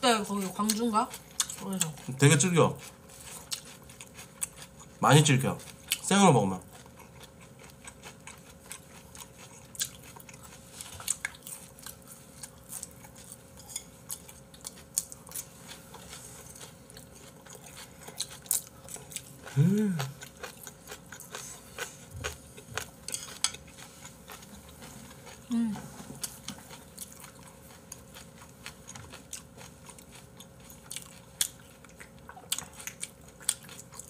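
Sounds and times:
chewing: 0:00.6 - 0:02.2, 0:02.8 - 0:05.0, 0:05.6 - 0:34.0
person humming: 0:19.5 - 0:20.2, 0:25.5 - 0:25.9.

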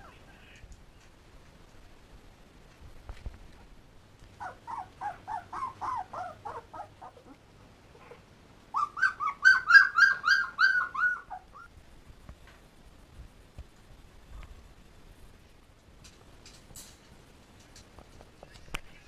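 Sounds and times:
puppies whining and squealing: 0:04.4 - 0:07.4, 0:08.8 - 0:11.7.

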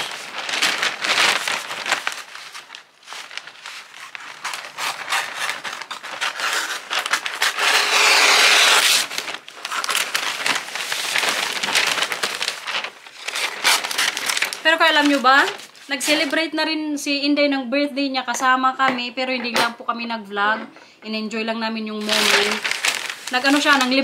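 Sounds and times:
wrapping paper crinkling: 0:00.0 - 0:16.6, 0:21.9 - 0:24.0.

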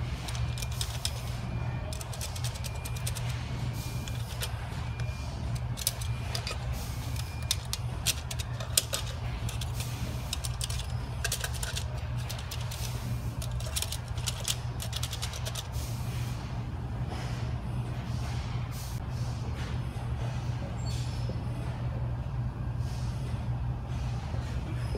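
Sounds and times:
steady low hum: 0:00.0 - 0:24.7
metal springs clicking in plastic retainers: 0:00.3 - 0:01.2, 0:05.5 - 0:06.6, 0:07.2 - 0:15.7.

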